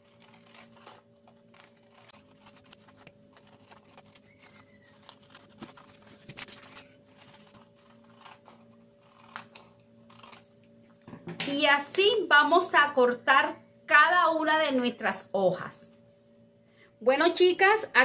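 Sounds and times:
paper rustling: 0:00.0 - 0:10.5
scissors snipping paper: 0:00.0 - 0:10.5.

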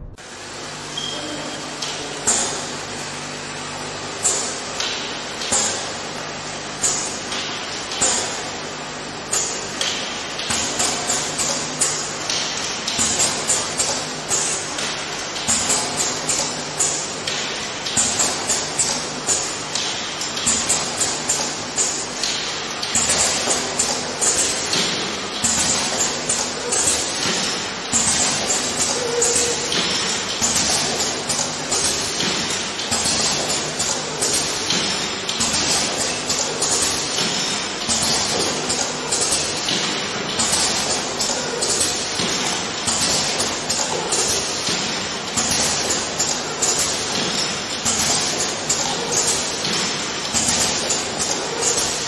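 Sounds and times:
machine hum: 0:00.0 - 0:52.0
machine hisses and clicks: 0:00.6 - 0:52.0.

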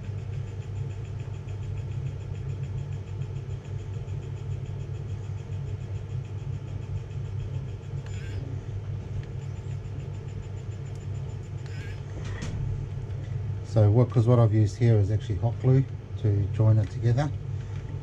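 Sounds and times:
steady low hum: 0:00.0 - 0:18.0
pen feed motor ticking: 0:00.1 - 0:12.1.

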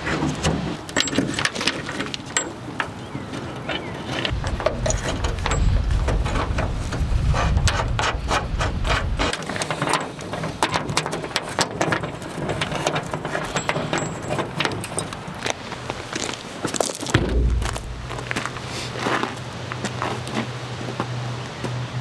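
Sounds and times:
low rumble: 0:17.2 - 0:18.7.

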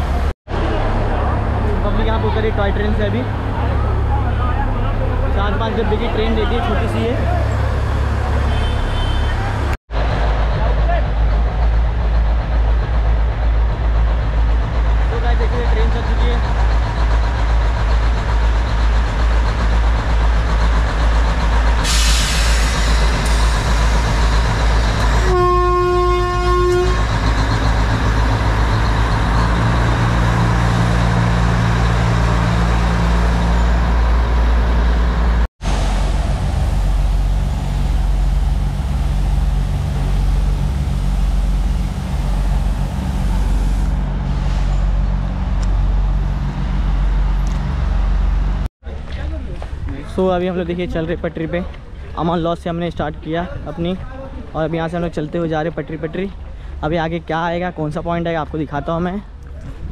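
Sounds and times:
diesel locomotive engine rumble: 0:00.0 - 0:59.9
train horn toot: 0:08.5 - 0:09.4, 0:25.2 - 0:27.2.

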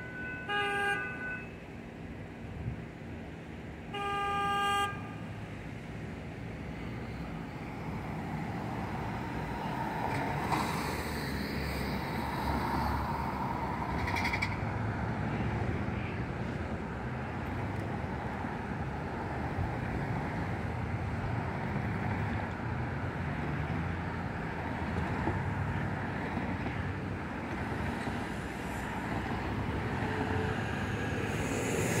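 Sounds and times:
cars driving past: 0:06.6 - 0:32.0.

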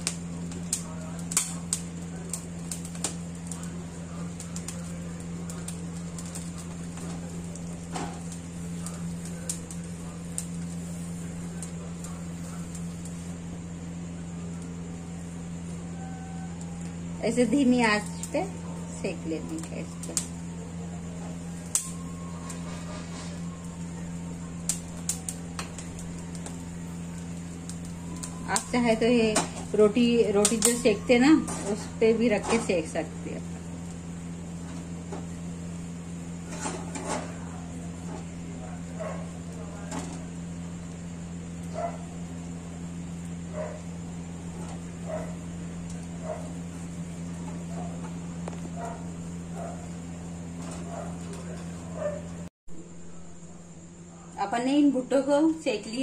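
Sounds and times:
corn kernels crackling: 0:00.0 - 0:13.4
low hum: 0:00.0 - 0:54.4
corn crackling over flame: 0:00.0 - 0:56.0
gas burner hissing: 0:00.0 - 0:56.0.

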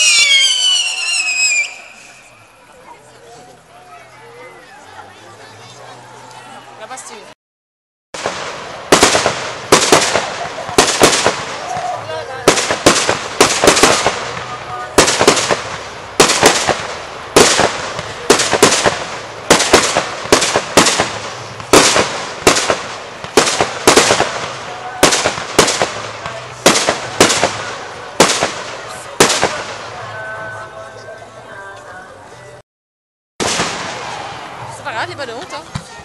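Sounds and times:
fireworks bursting with sharp bangs: 0:00.0 - 0:02.5, 0:08.2 - 0:30.4, 0:33.4 - 0:36.0.

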